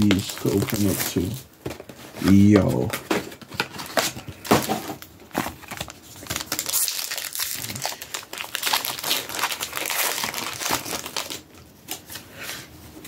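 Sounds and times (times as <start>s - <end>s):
foil wrappers crinkling: 0.0s - 1.4s, 2.3s - 12.2s.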